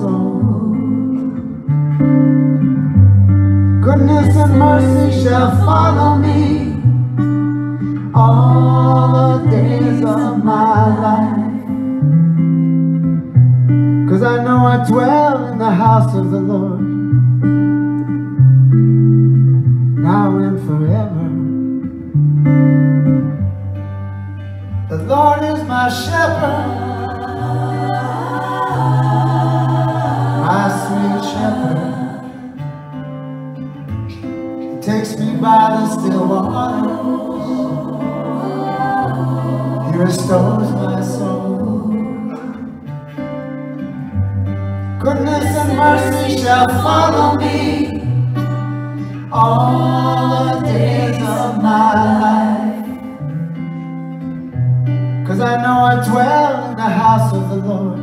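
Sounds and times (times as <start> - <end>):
group singing in harmony: 0.0 - 1.4, 3.8 - 11.9, 25.7 - 32.8, 34.8 - 42.8, 45.0 - 53.3
acoustic guitar: 0.0 - 58.0.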